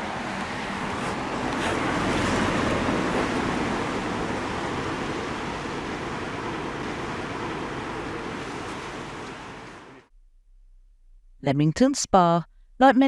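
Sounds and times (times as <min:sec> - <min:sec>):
rushing outdoor background noise: 0:00.0 - 0:10.1.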